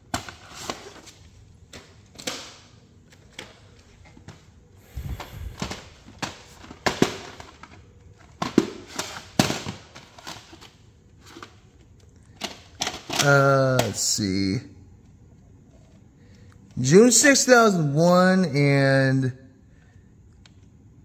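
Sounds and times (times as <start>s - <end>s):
plastic cassettes clicking: 5.6s - 14.0s.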